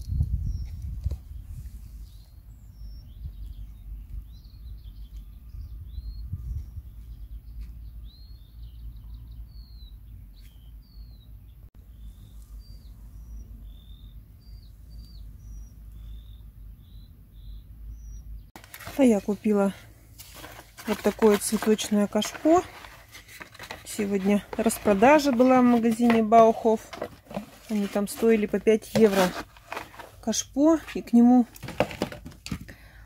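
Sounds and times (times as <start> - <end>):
songbirds chirping: 0.0 - 33.0.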